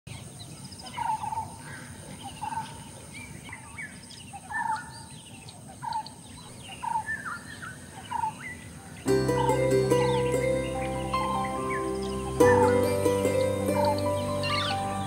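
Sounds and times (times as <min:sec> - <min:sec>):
higher bird chirps: 0:09.1 - 0:15.0.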